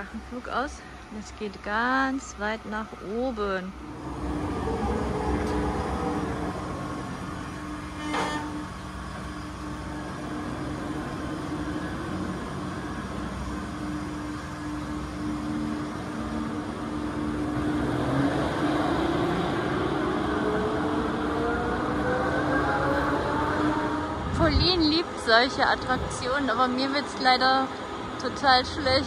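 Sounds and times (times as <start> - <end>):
ride motor humming: 0.0 - 29.0.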